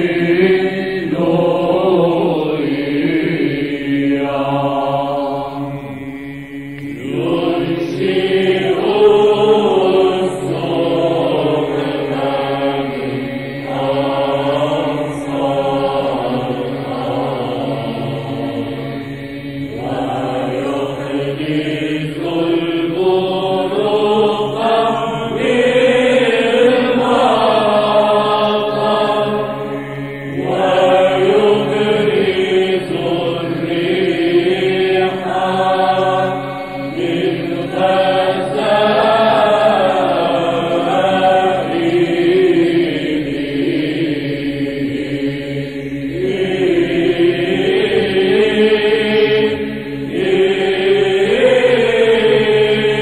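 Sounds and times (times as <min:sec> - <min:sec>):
choir chanting: 0:00.0 - 0:53.0.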